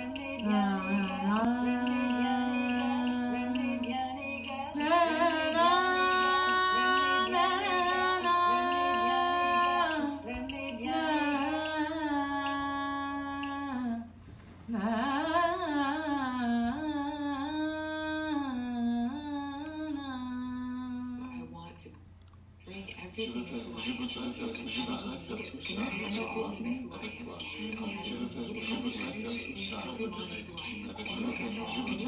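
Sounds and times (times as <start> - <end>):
person singing wordless notes: 0.0 - 14.1.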